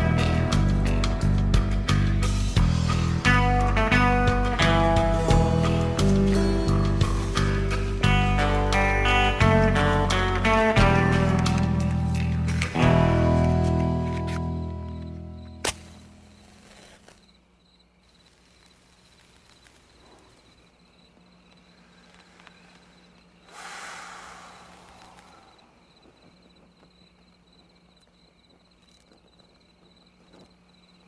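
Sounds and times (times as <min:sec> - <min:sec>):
low steady hum: 0:00.0 - 0:31.0
faint background hiss: 0:15.0 - 0:31.0
soft rushing hiss: 0:15.5 - 0:31.0.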